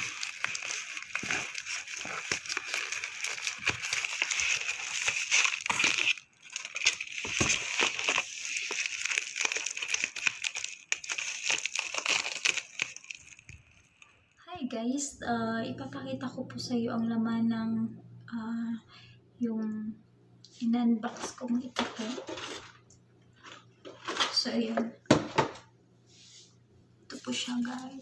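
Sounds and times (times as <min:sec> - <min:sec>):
bubble wrap crinkling: 0:00.0 - 0:14.2.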